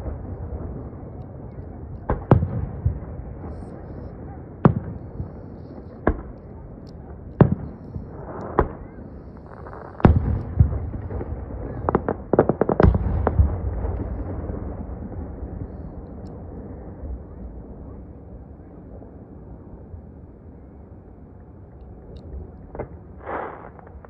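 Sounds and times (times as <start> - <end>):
low rumble: 0.0 - 24.0
sharp firework cracks: 7.4 - 14.7, 22.8 - 24.0.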